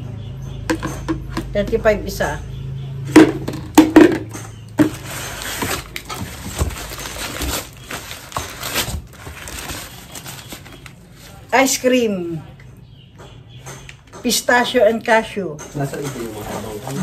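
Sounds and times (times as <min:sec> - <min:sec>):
paper bag crinkling: 0:04.8 - 0:11.4.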